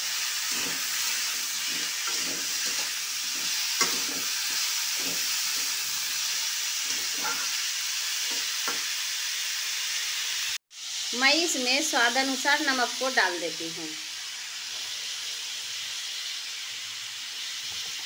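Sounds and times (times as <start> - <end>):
vegetables sizzling in hot oil: 0.0 - 18.0
metal spatula scraping pan: 0.4 - 8.9.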